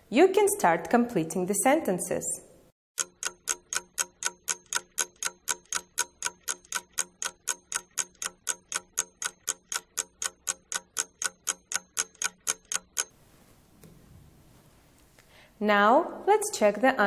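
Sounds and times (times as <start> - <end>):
clock ticking rapidly: 3.0 - 13.1.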